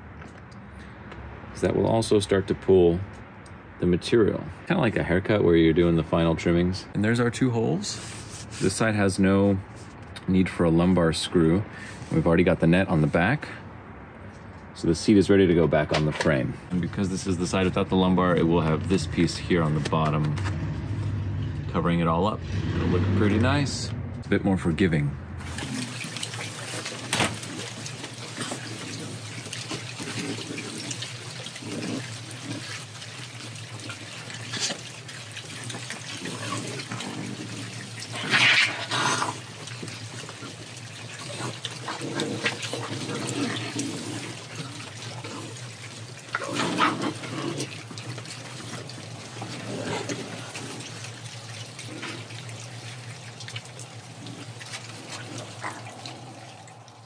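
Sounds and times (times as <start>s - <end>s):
steady low hum: 16.9s - 26.4s
raccoons chewing and smacking: 25.4s - 57.0s.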